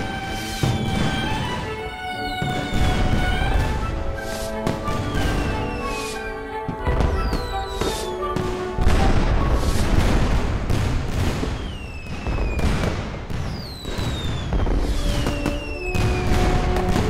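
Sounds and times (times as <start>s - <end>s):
music tones: 0.0s - 10.6s, 14.7s - 17.0s
fireworks bangs and crackle: 0.0s - 17.0s
whistling firework shells: 0.0s - 17.0s.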